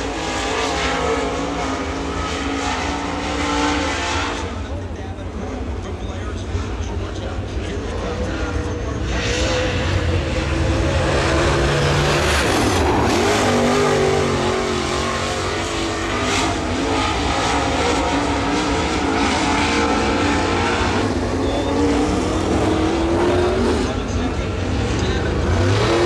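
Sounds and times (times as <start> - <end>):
race car engines at full throttle: 0.0 - 26.0.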